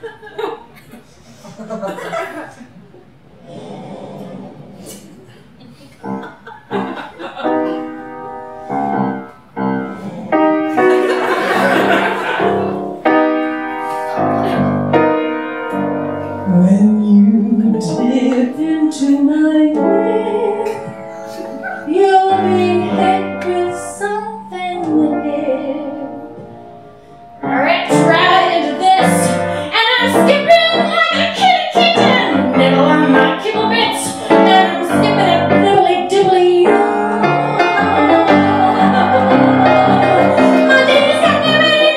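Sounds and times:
piano accompaniment: 6.0 - 41.9
woman singing: 16.5 - 21.0, 21.9 - 26.4, 27.4 - 39.1, 40.0 - 41.9.

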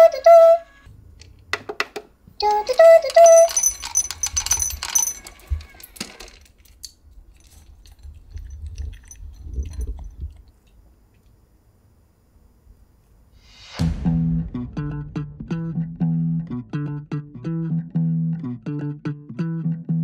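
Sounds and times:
pet feeder tone: 2.4 - 6.0
kibble clinking into ceramic bowl: 3.0 - 5.9
small dog eating: 7.6 - 10.6.

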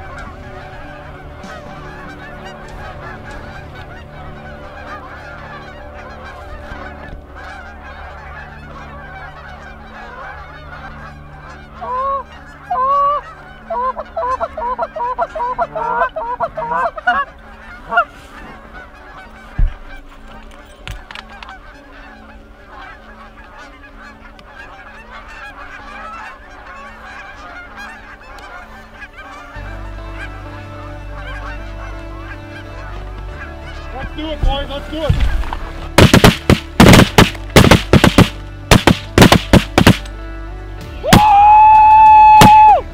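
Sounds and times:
geese honking: 0.0 - 42.9
sharp knock: 36.0 - 40.1.

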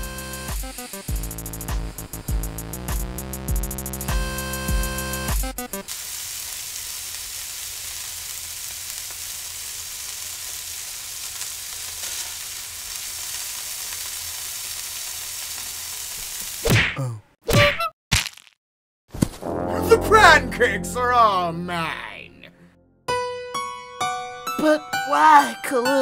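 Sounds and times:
batter sizzling in a pan: 0.0 - 3.2, 5.7 - 16.7
short music sting: 19.4 - 22.5
short voice-like sound: 19.4 - 22.7.

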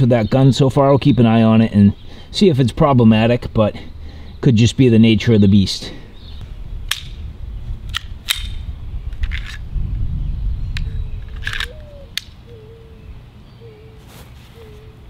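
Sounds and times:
air pistol clicks and clacks: 6.9 - 7.2, 7.9 - 9.6, 10.8 - 12.4.

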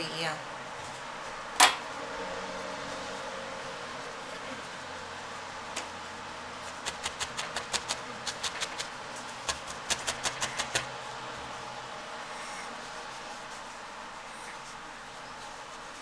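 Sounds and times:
faint steady hum: 0.0 - 16.0
felting needle clicking into wool: 9.5 - 10.9.

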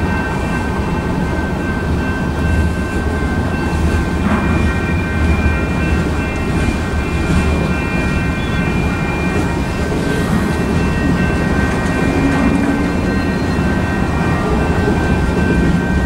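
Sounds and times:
thin steady high tones: 0.0 - 16.0
train wheels rumbling on rails: 0.0 - 16.0.

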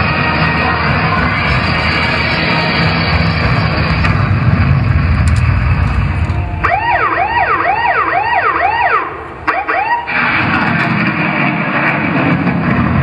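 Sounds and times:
loud music: 0.0 - 5.0
siren sound effect: 6.2 - 11.8.

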